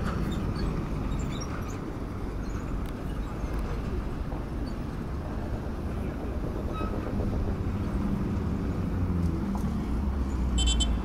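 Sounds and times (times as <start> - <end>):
traffic rumbling on dirt road: 0.0 - 11.0
high-pitched vehicle horn toot: 10.6 - 11.0.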